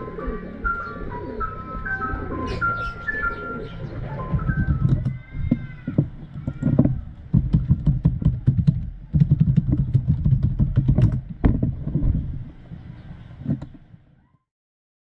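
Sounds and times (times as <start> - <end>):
low rumble: 3.8 - 13.8
computer keyboard typing: 7.4 - 11.3.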